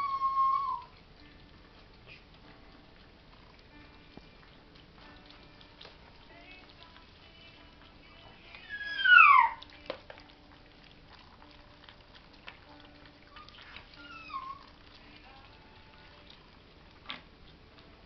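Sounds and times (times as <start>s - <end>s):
puppy whining: 0.0s - 3.6s, 8.4s - 9.8s, 11.1s - 16.5s.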